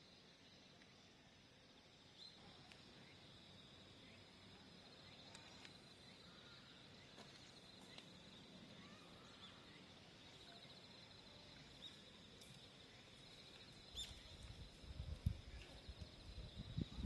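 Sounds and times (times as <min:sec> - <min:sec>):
bird chirps: 0:13.9 - 0:14.3.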